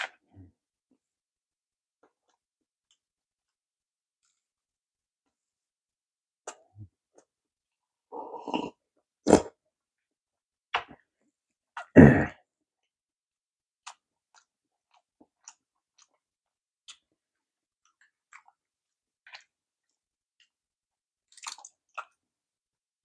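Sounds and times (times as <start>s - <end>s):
man clearing throat: 11.9s - 12.4s.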